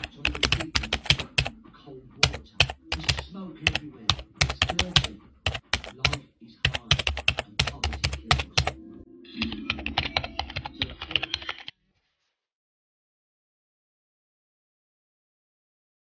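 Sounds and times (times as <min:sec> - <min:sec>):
keyboard typing: 0:00.0 - 0:01.6, 0:02.2 - 0:08.8, 0:09.4 - 0:11.7.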